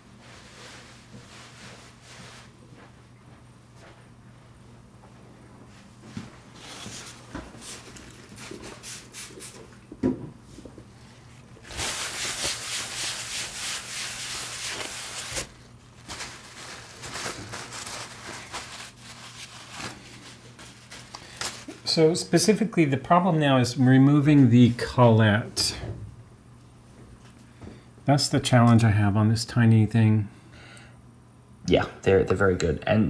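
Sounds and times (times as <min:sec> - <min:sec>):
cloth rubbing on mat: 0:00.0 - 0:03.0, 0:10.4 - 0:21.7.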